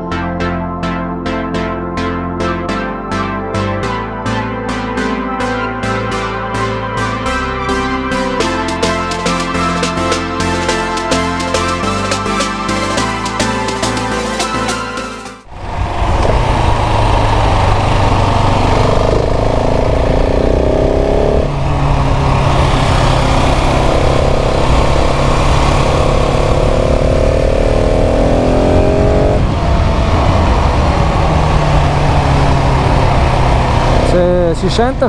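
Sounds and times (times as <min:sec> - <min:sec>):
wind rush: 0:15.4 - 0:35.0
motorcycle engine running: 0:15.5 - 0:35.0.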